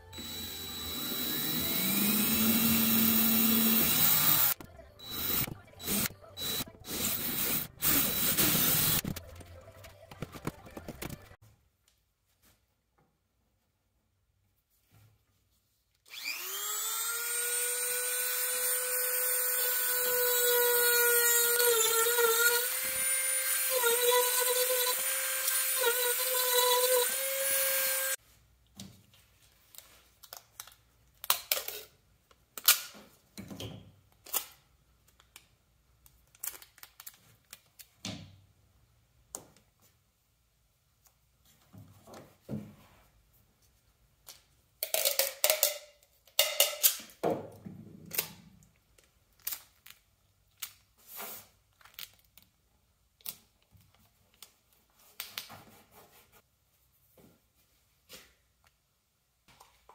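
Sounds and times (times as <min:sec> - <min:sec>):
power tool cutting wood: 0:00.0 - 0:09.0, 0:16.1 - 0:28.2.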